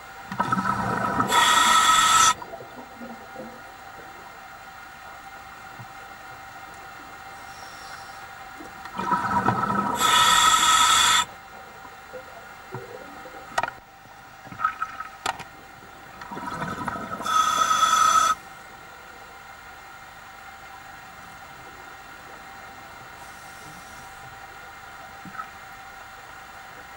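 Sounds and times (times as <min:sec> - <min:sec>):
diver breathing through regulator: 0:00.5 - 0:02.4, 0:07.4 - 0:08.3, 0:09.2 - 0:11.3, 0:16.5 - 0:18.4.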